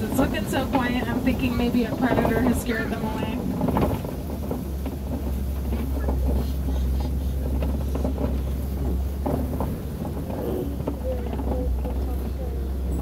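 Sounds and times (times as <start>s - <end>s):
truck engine rumble: 0.0s - 13.0s
vehicle knocks and rattles: 0.0s - 13.0s.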